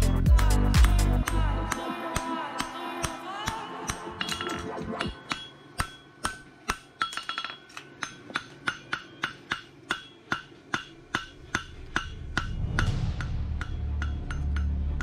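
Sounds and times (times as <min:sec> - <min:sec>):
hammer striking horseshoe on anvil: 0:00.8 - 0:15.0.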